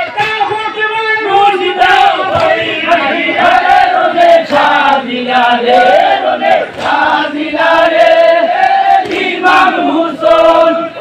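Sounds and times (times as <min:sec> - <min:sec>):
men chanting together: 0:01.2 - 0:11.0.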